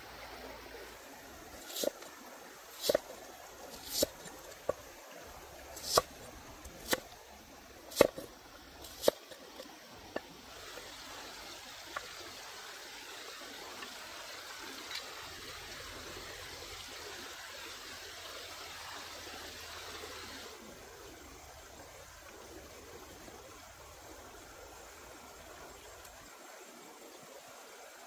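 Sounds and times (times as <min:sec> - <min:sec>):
flowing stream water: 0:00.0 - 0:28.0
cleaver chopping onion on wood: 0:02.8 - 0:04.8, 0:05.8 - 0:06.1, 0:06.7 - 0:07.1, 0:07.9 - 0:08.3, 0:08.9 - 0:09.3.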